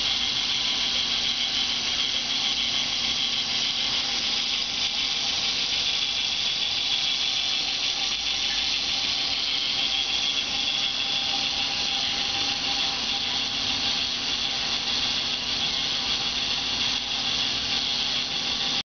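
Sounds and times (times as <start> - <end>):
toy motor and plastic gears running: 0.0 - 18.8.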